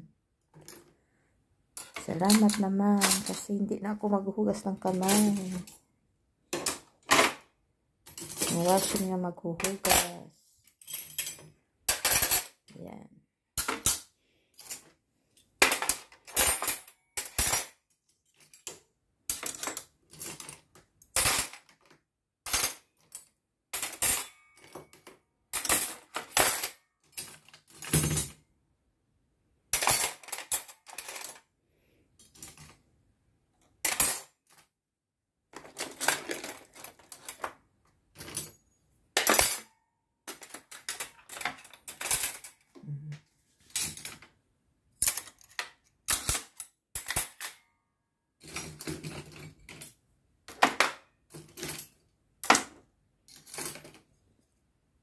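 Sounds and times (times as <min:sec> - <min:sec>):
cutlery clattering into plastic tray: 0:01.8 - 0:03.5, 0:04.9 - 0:05.7, 0:06.5 - 0:10.2, 0:10.8 - 0:12.7, 0:13.6 - 0:14.1, 0:15.6 - 0:23.2, 0:23.8 - 0:28.4, 0:29.8 - 0:31.5, 0:32.2 - 0:32.8, 0:33.8 - 0:34.7, 0:35.5 - 0:38.6, 0:39.2 - 0:42.8, 0:43.6 - 0:44.3, 0:45.0 - 0:47.6, 0:48.4 - 0:54.1.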